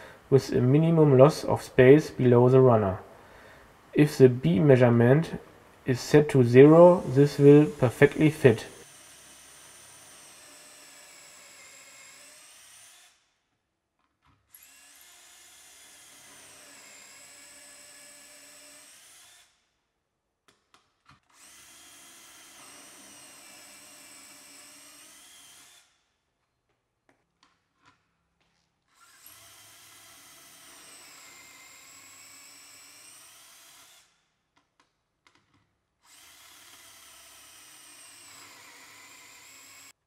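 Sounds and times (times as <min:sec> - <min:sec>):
cordless drill whining: 0:08.8 - 0:13.2, 0:14.5 - 0:19.6, 0:21.2 - 0:26.0, 0:28.9 - 0:34.2, 0:36.0 - 0:40.0.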